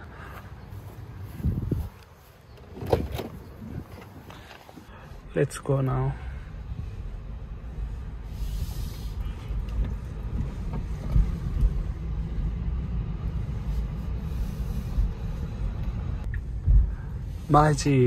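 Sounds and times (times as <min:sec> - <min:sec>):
road and tyre rumble: 0:00.0 - 0:18.0.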